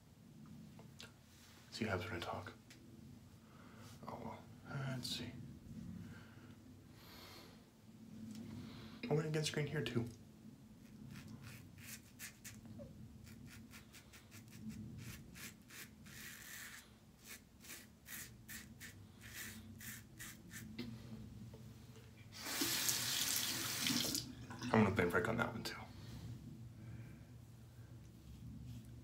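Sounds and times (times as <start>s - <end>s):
razor scraping stubble: 10.9s - 20.9s
water tap running: 22.4s - 24.6s.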